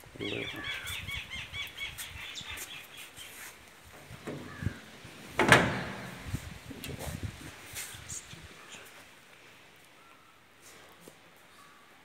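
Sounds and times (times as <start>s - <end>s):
small birds chirping: 0.0s - 3.8s.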